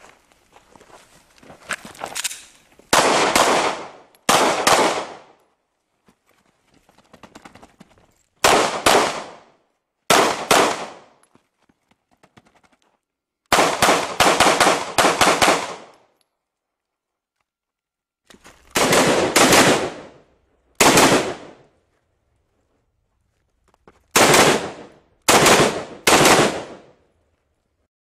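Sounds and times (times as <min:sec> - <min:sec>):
pistol shots with echo: 0:02.9 - 0:05.4, 0:08.4 - 0:09.5, 0:10.1 - 0:11.1, 0:13.5 - 0:15.9, 0:18.8 - 0:20.2, 0:20.8 - 0:21.6, 0:24.2 - 0:26.9.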